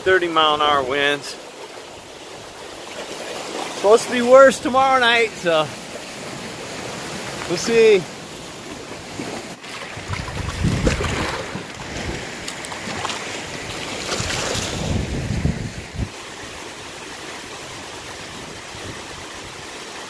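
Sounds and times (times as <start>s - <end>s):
choppy lake water: 0.0s - 20.0s
strong gusty wind on microphone: 9.9s - 12.4s, 14.1s - 16.2s.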